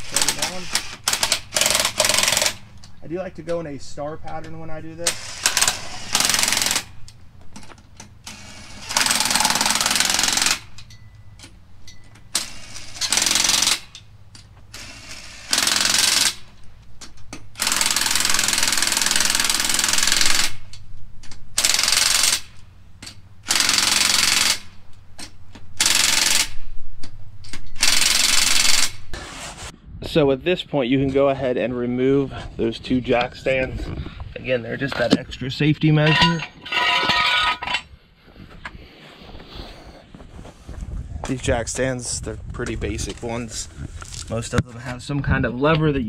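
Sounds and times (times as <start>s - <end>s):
impact wrench hammering lug nuts: 0.0s - 2.7s, 4.4s - 20.8s, 21.6s - 26.6s.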